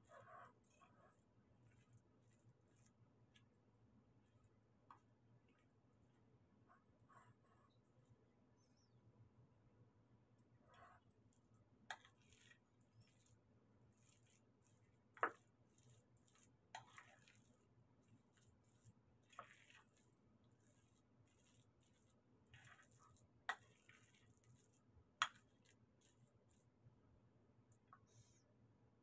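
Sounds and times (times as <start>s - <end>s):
spoon mashing soft food: 0.1s - 6.3s, 10.4s - 26.8s.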